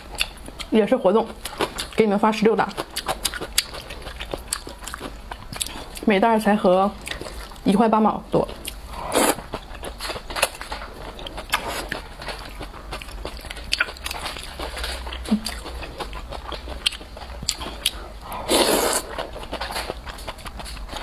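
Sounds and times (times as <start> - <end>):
noodles being chewed and slurped: 2.6 - 6.1, 8.6 - 21.0.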